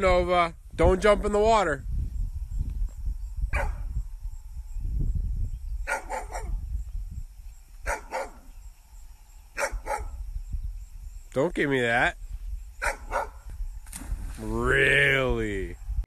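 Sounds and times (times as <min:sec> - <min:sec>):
dog barking: 0:03.5 - 0:03.8, 0:05.9 - 0:06.6, 0:07.8 - 0:08.5, 0:09.6 - 0:10.2, 0:12.8 - 0:13.4.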